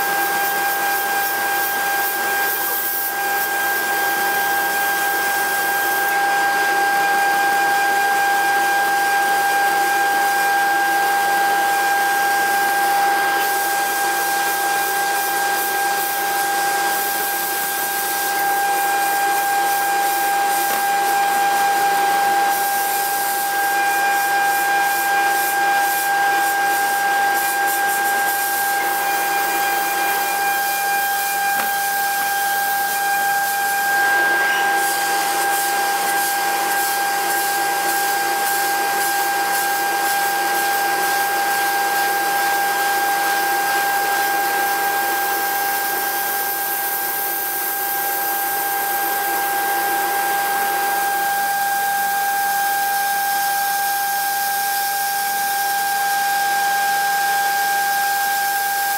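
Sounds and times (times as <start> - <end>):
milling machine cutting metal: 11.6 - 40.4.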